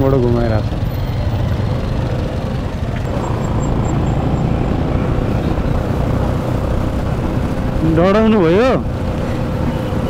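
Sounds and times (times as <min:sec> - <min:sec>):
motorcycle engine running: 0:00.0 - 0:10.0
wind rushing over microphone: 0:02.0 - 0:09.6.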